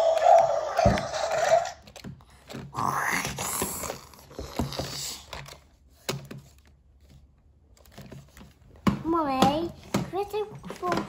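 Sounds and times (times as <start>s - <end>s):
plastic toys knocking and scraping: 0.0s - 6.7s, 7.8s - 11.0s.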